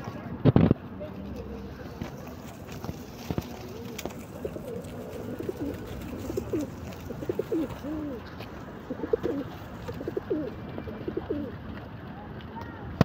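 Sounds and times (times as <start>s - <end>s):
pigeons cooing: 3.7s - 11.6s.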